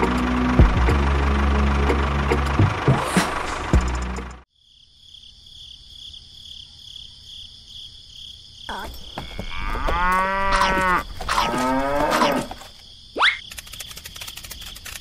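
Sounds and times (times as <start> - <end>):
insects chirring: 4.5 - 15.0
cow mooing: 9.2 - 12.6.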